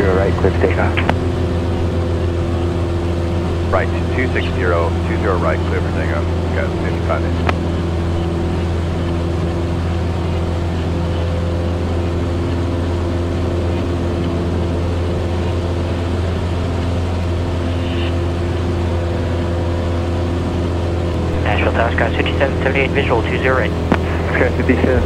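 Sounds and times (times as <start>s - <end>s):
propeller plane engine drone: 0.0s - 25.0s.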